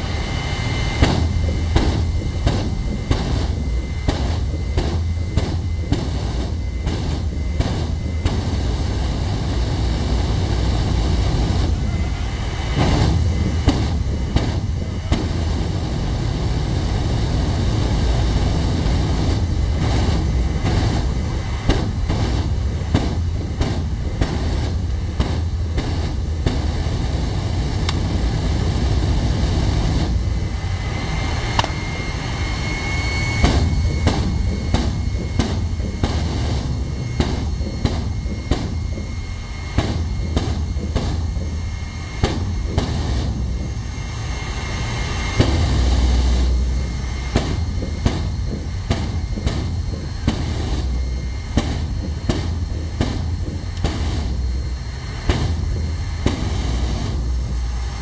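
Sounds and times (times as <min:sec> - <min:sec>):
jet engine roaring: 0:00.0 - 0:58.0.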